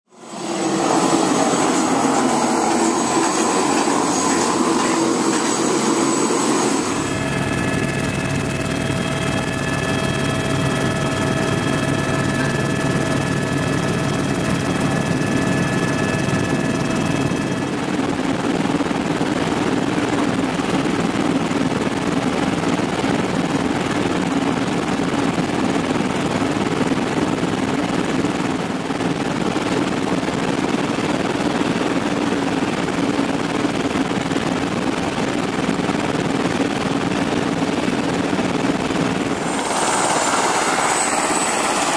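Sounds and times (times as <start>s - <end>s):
high steady whining tones: 0.1s - 20.6s, 35.9s - 41.9s
helicopter turbine and rotor rumble: 0.1s - 41.9s.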